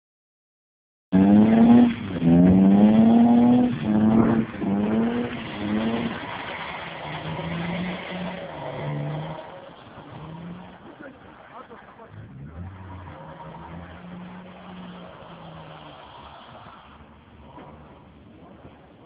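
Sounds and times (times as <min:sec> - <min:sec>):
car engine revving: 0:01.1 - 0:19.0.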